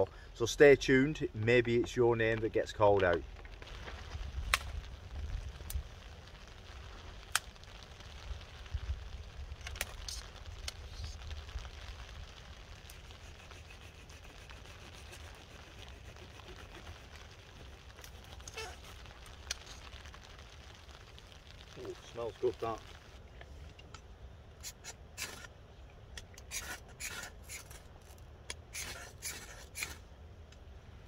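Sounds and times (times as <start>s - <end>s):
faint hiss: 0.0s - 31.0s
sharp ticks and crackles: 1.4s - 25.6s.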